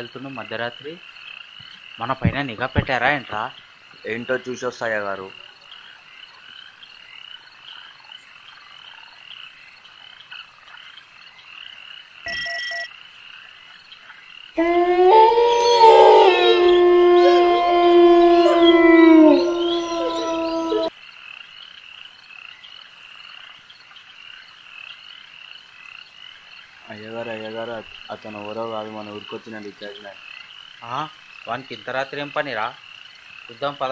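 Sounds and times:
frogs croaking: 0:00.0 - 0:33.9
short high tone: 0:12.3 - 0:12.9
dogs howling: 0:14.6 - 0:20.9.

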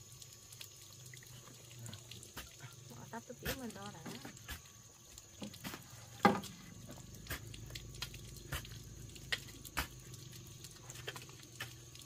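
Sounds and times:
objects knocking and clicking: 0:05.4 - 0:07.4.

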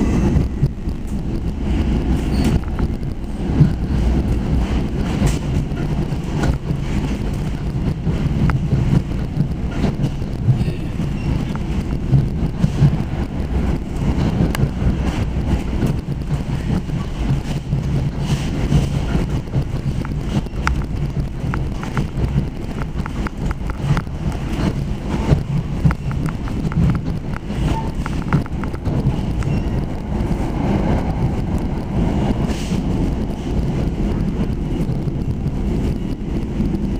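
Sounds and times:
train rumbling on board: 0:00.0 - 0:36.9
sharp clicks and knocks: 0:00.3 - 0:30.3.

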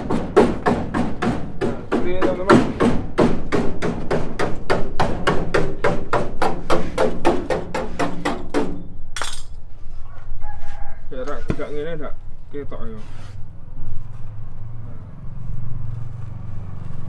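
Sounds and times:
hammering on sheet metal: 0:00.0 - 0:09.0.

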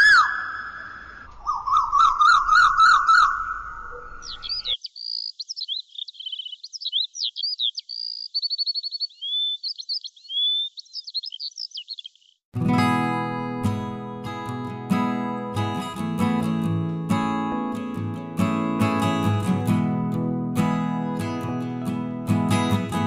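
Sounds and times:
songbird whistles and trills: 0:00.0 - 0:12.2
quick rising bird chirps: 0:00.0 - 0:12.4.

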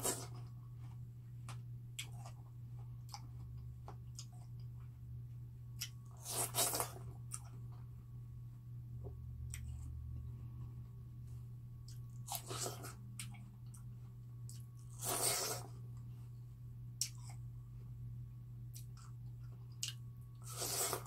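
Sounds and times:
steady low hum: 0:00.0 - 0:21.0
watermelon crunching while chewing: 0:05.8 - 0:07.6, 0:11.9 - 0:15.8, 0:18.7 - 0:21.0.

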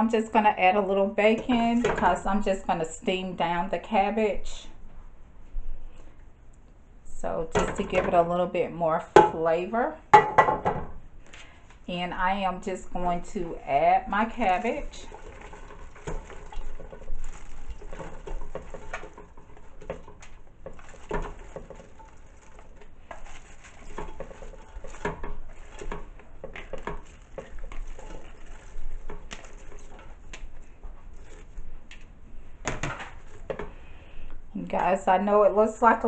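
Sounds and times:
cabbage pieces falling and rustling: 0:14.4 - 0:33.8.

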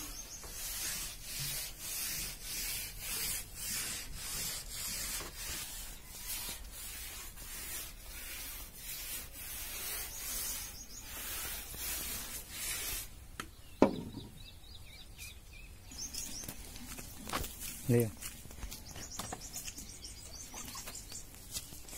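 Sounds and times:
hand rubbing wet floor: 0:00.0 - 0:13.2.

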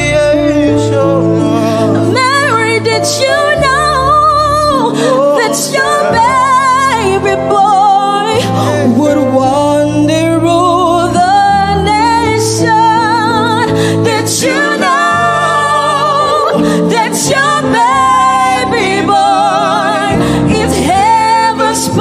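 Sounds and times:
instrumental accompaniment: 0:00.0 - 0:22.0
woman singing with vibrato: 0:02.1 - 0:08.4.

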